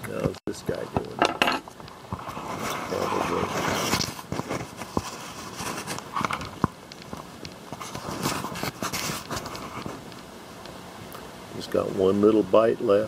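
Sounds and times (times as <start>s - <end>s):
soft rustles: 1.8s - 10.7s.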